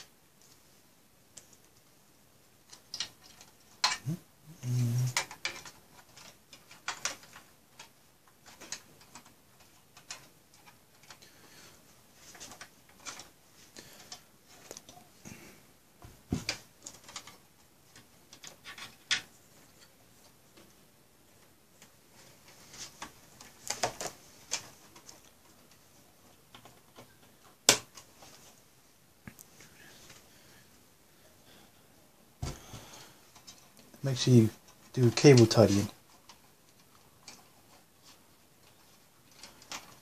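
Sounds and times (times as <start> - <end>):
clicks taps and rattles: 5.1 - 11.5.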